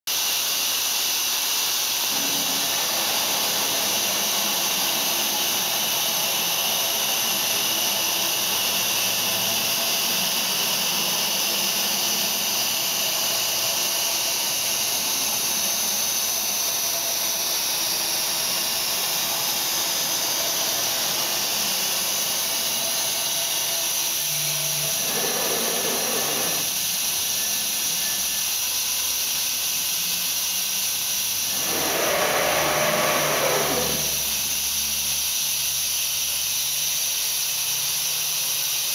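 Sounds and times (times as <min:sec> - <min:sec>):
cnc router whining: 0:01.8 - 0:28.8, 0:31.4 - 0:35.1.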